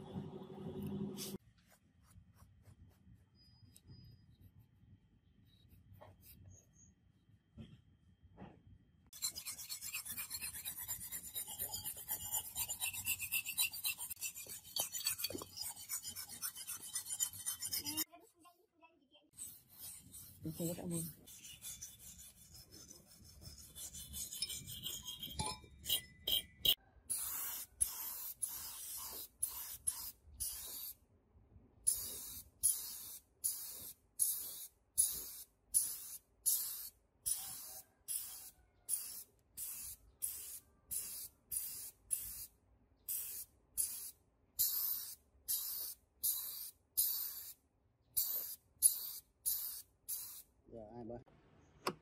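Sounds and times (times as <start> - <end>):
wire brush scrubbing metal: 9.2 - 18.1, 19.4 - 30.1.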